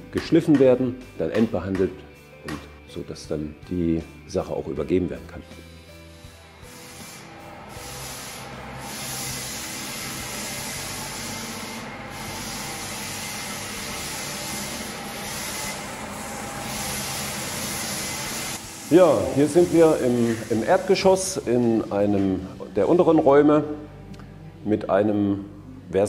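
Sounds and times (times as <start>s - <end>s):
floor sanding machine running: 5.7s - 22.0s.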